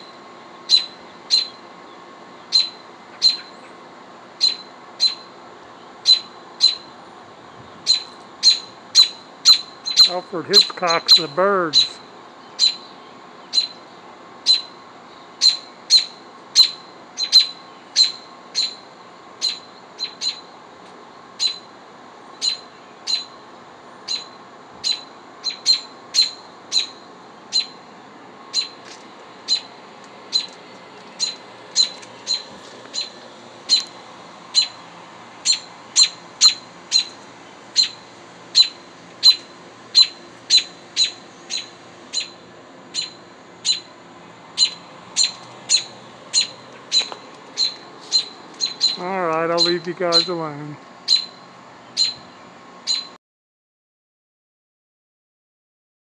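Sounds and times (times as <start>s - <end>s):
robin sharp alarm calls: 0.7s - 1.6s, 2.5s - 3.6s, 4.4s - 5.3s, 6.0s - 6.9s, 7.8s - 20.6s, 21.4s - 21.7s, 22.4s - 23.4s, 24.0s - 27.8s, 28.5s - 28.8s, 29.5s - 30.6s, 31.2s - 33.9s, 34.5s - 34.8s, 35.4s - 44.0s, 44.6s - 50.5s, 51.1s - 51.4s, 52.0s - 52.3s, 52.9s - 53.2s.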